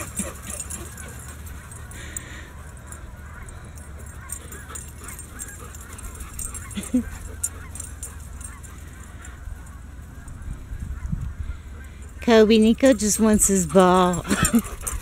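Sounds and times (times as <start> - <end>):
dog whining: 0.0 - 9.3.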